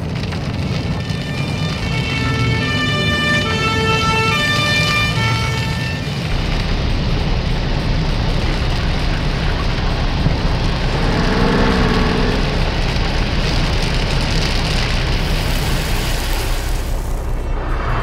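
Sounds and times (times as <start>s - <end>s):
fire hose spraying water: 0.0s - 18.0s
low steady rumble: 6.3s - 16.0s
warbling tone: 10.4s - 13.5s.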